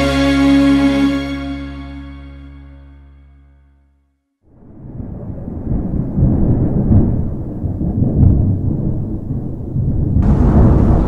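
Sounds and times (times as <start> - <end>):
rolling thunder: 4.5 - 11.0
heavy rain hissing: 10.2 - 11.0.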